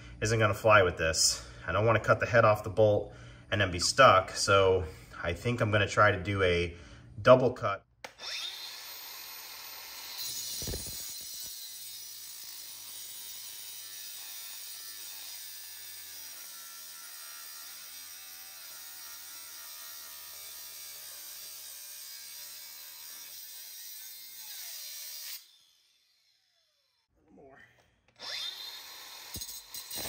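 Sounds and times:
angle grinder cutting steel: 0:08.1 - 0:27.0, 0:28.2 - 0:30.0.

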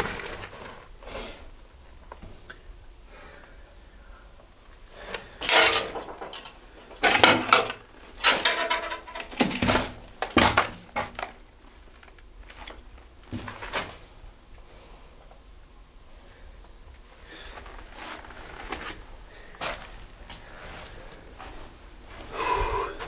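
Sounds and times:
hard debris clattering and scraping: 0:05.0 - 0:13.9.

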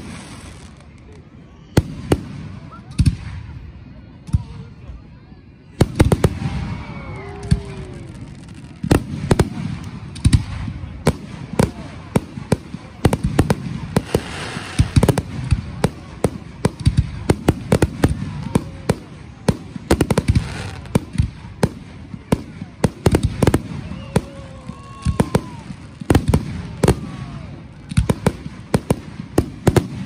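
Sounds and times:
firework crackle: 0:00.0 - 0:03.4, 0:05.8 - 0:30.0.

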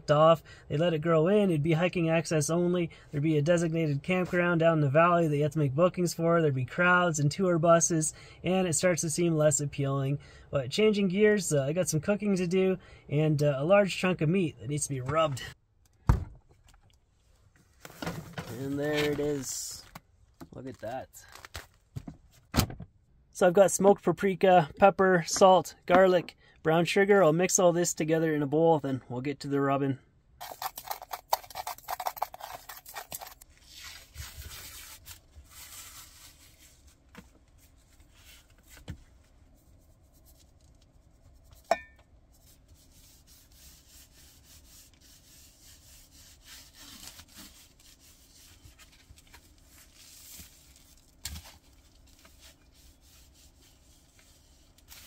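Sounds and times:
metal cup clink: 0:41.7 - 0:42.0
gloved hands rubbing meat: 0:42.4 - 0:48.7, 0:49.6 - 0:55.0.

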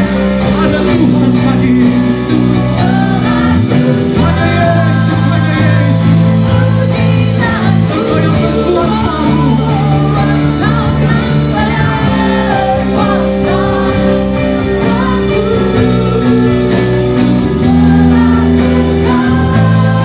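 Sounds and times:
worship band with singers: 0:00.0 - 0:20.0.

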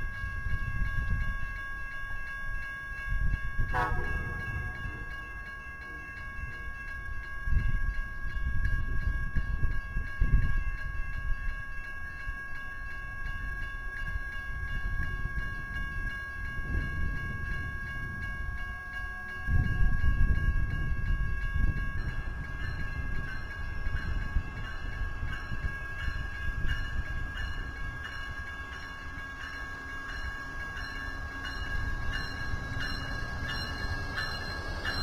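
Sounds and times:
faint steady high tones: 0:00.0 - 0:08.7
train rumbling into station: 0:03.2 - 0:11.4, 0:13.3 - 0:35.0.

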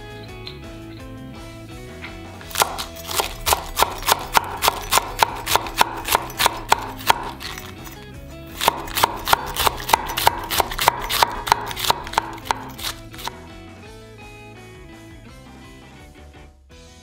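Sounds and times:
background music: 0:00.0 - 0:17.0
knife shredding cabbage on wood: 0:02.5 - 0:13.4.

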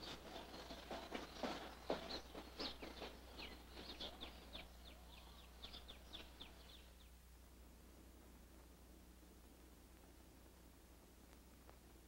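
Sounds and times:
small birds chirping: 0:00.0 - 0:07.3.

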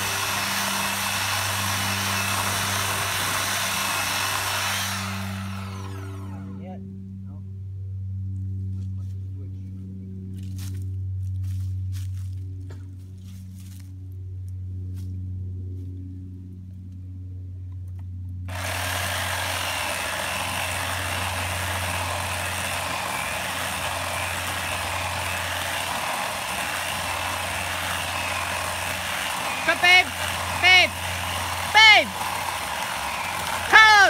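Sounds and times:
electric chainsaw cutting wood: 0:00.0 - 0:06.7, 0:18.5 - 0:34.0
low hum: 0:00.0 - 0:33.7.

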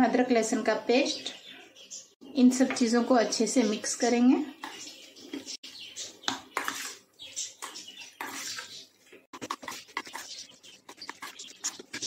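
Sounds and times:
spoon scraping metal bowl: 0:06.5 - 0:12.0.

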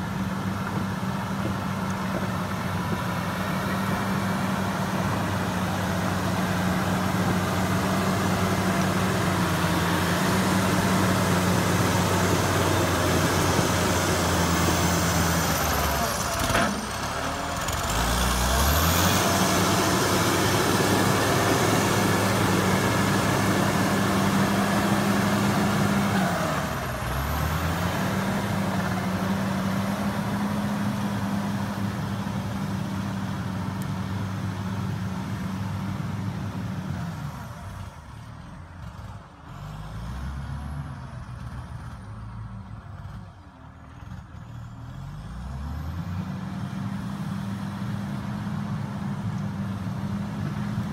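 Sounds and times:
diesel engine running: 0:00.0 - 0:50.9.

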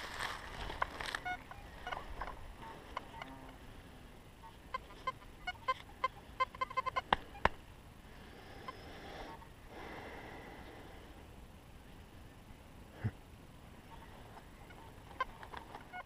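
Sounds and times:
soft rustling: 0:00.0 - 0:03.8.

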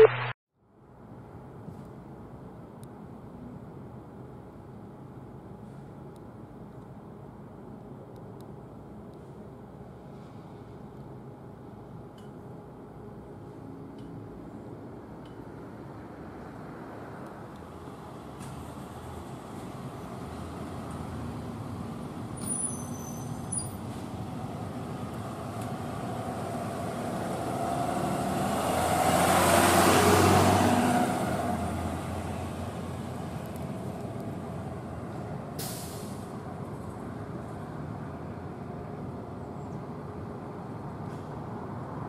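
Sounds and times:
vehicle engine and tyre noise: 0:00.1 - 0:42.0
short hiss: 0:35.6 - 0:36.3.

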